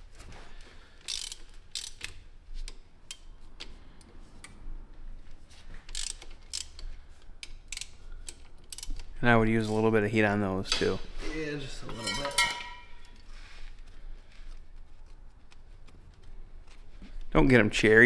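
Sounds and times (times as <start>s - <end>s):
socket ratchet clicking: 1.0s - 3.7s, 5.8s - 9.2s.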